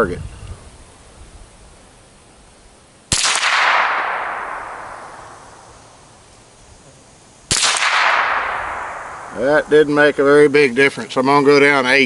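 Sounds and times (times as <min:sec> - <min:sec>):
rifle shot: 0:03.1 - 0:06.0, 0:07.5 - 0:09.8.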